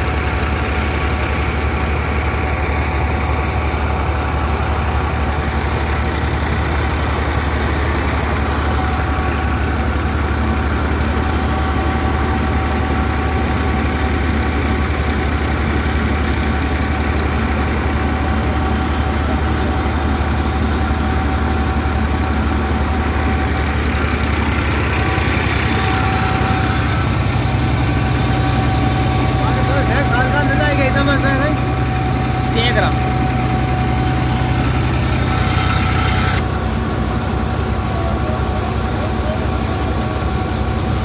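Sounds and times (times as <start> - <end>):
thresher drum and fan whirring: 0.0 - 41.0
tractor engine running: 0.0 - 41.0.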